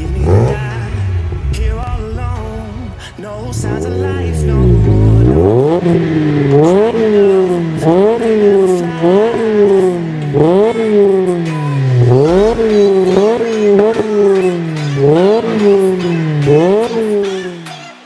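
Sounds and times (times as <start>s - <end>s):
car engine revving: 0.0s - 17.8s.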